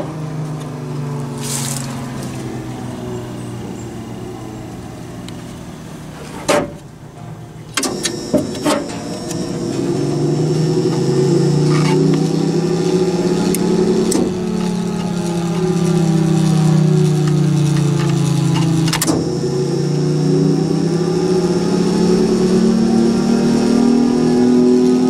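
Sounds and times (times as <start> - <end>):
warning siren hum: 0.0 - 6.2, 7.8 - 25.0.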